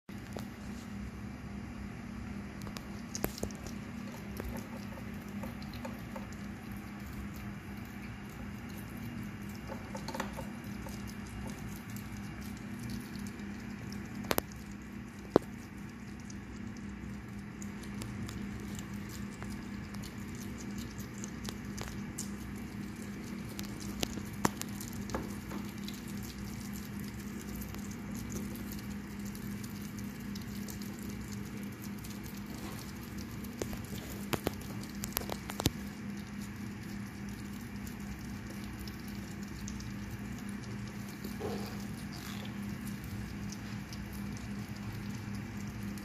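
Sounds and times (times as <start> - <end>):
steady low hum: 0.1 - 46.0
hedgehogs chewing crunching clicks: 2.6 - 46.0.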